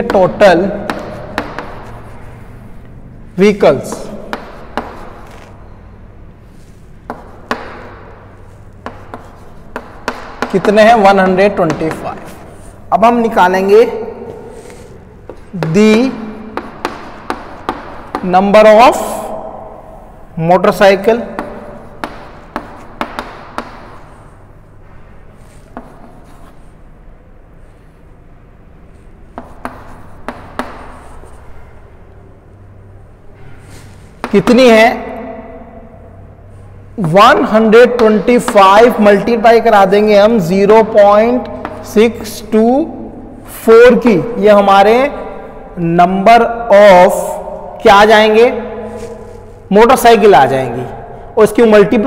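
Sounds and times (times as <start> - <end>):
chalk tapping on blackboard: 0.0 - 2.9, 3.8 - 5.6, 6.6 - 12.8, 14.2 - 18.7, 21.2 - 24.6, 25.4 - 26.7, 29.1 - 31.6, 33.7 - 34.6, 40.8 - 42.4
chalk scratching on blackboard: 0.9 - 2.9, 3.8 - 5.6, 6.4 - 12.9, 14.3 - 18.2, 25.4 - 26.9, 29.0 - 31.7.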